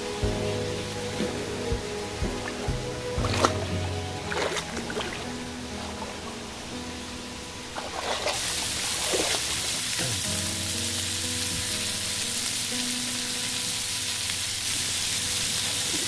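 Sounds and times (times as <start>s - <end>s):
pork sizzling on a grill pan: 8.4s - 16.0s.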